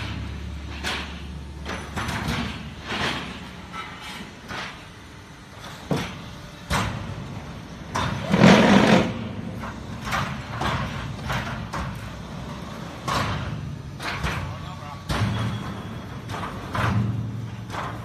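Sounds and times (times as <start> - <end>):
metal clanks and knocks: 0.0 - 4.9, 7.8 - 18.0.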